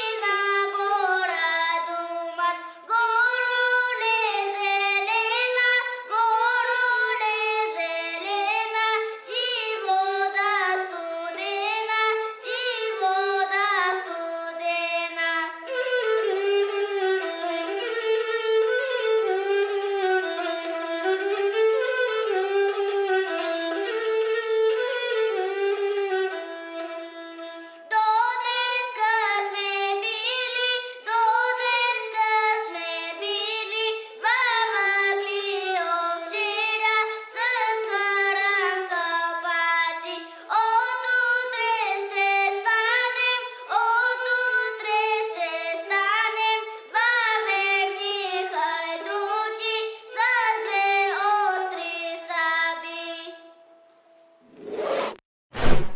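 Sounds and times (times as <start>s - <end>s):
boy singing: 0.0s - 16.7s, 27.9s - 53.5s
bowed folk fiddle: 0.0s - 53.1s.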